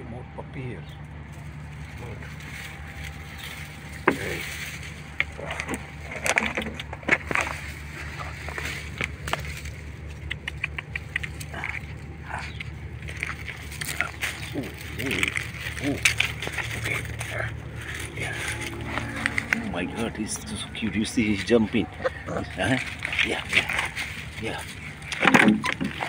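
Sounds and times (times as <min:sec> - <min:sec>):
steady low hum: 0:00.0 - 0:26.0
dry palm fronds rustling: 0:01.2 - 0:26.0
sharp snaps: 0:10.1 - 0:12.8.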